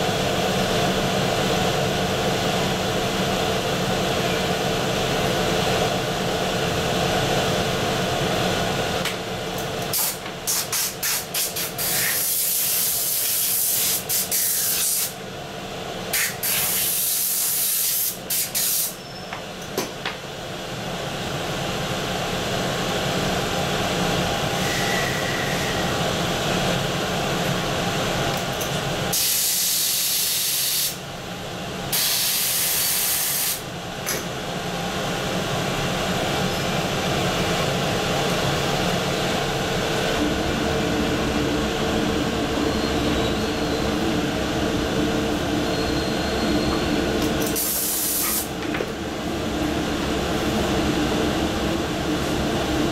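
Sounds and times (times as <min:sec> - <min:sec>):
steady machine hum: 0:00.0 - 0:14.1, 0:15.1 - 0:17.5, 0:19.0 - 0:30.2, 0:30.9 - 0:52.9
compressed air hissing: 0:16.2 - 0:19.0, 0:47.6 - 0:48.5.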